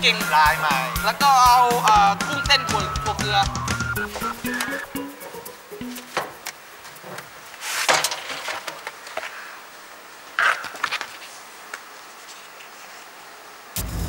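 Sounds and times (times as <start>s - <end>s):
folder rustling: 4.0s - 4.8s.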